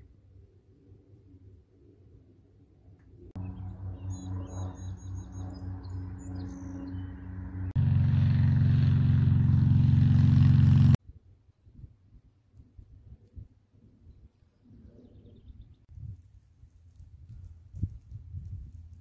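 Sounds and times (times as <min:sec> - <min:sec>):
propeller plane droning overhead: 0:00.0 - 0:11.0
birds chirping: 0:03.4 - 0:08.3.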